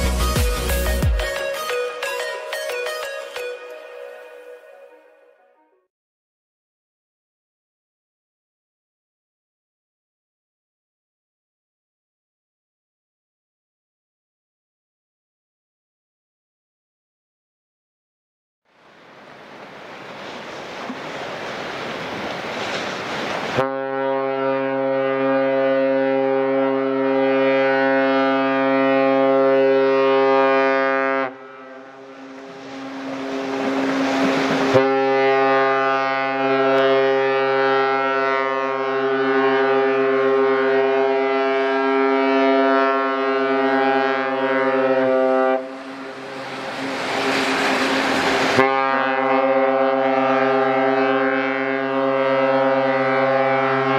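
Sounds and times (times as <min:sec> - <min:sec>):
ship's horn blasts: 0:22.6 - 0:53.9
steady rushing noise: 0:31.9 - 0:34.8, 0:45.6 - 0:49.0.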